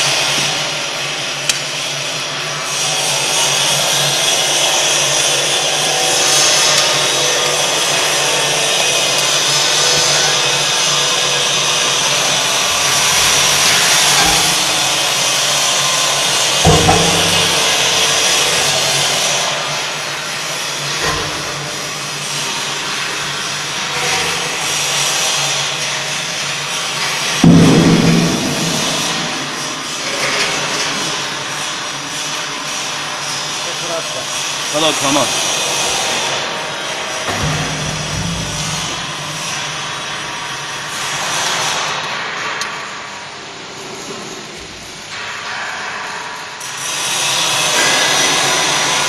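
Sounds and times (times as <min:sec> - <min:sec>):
stove machine rushing noise: 0:00.0 - 0:45.2
low knocks: 0:16.6 - 0:18.7, 0:27.4 - 0:29.6, 0:37.3 - 0:39.5.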